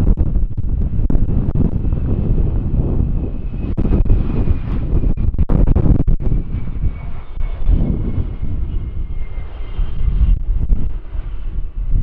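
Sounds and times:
jet engines rumbling: 0.0 - 12.0
thin steady jet whine: 0.0 - 12.0.

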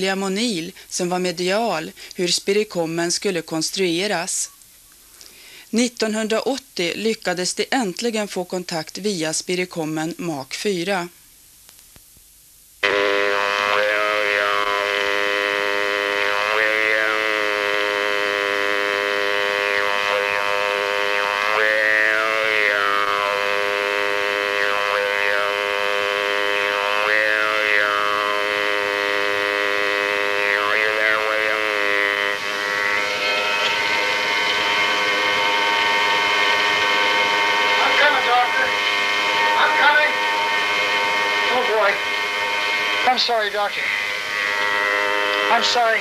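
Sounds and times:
buzzing robotic voice: 12.8 - 46.0
drone of held tones: 12.8 - 46.0.

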